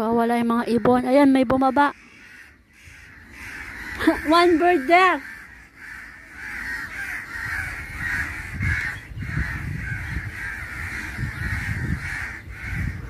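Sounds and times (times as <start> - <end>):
crows cawing: 0.4 - 13.0.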